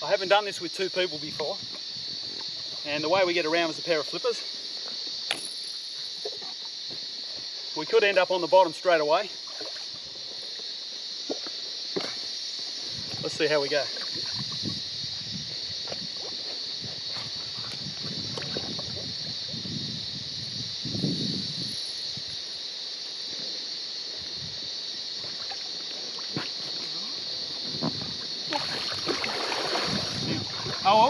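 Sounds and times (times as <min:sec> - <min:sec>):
cicadas buzzing: 0:00.0 - 0:31.0
water sloshing and splashing: 0:09.4 - 0:10.3, 0:13.8 - 0:14.8, 0:17.1 - 0:19.1, 0:25.2 - 0:26.8, 0:27.9 - 0:31.0.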